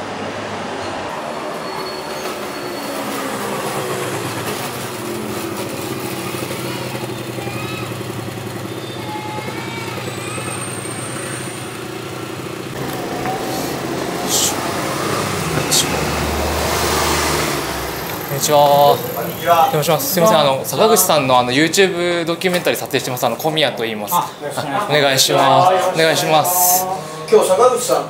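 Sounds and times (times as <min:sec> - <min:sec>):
train humming: 0:00.0 - 0:21.0
high squeal: 0:00.7 - 0:20.5.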